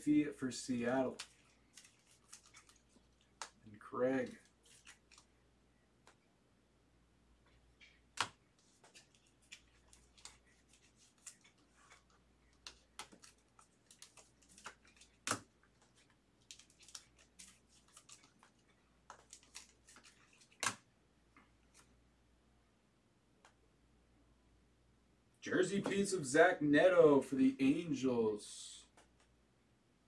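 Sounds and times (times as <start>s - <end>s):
cards sliding into plastic sleeves: 0.6s - 3.6s, 4.2s - 5.3s, 7.8s - 20.8s.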